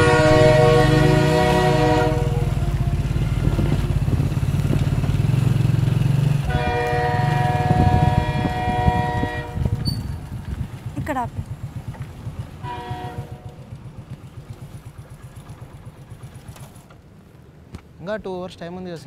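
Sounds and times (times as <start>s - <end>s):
multi-tone horn blast: 0.0s - 3.9s, 6.4s - 9.9s, 12.6s - 13.6s
vehicle engine running: 0.0s - 17.0s.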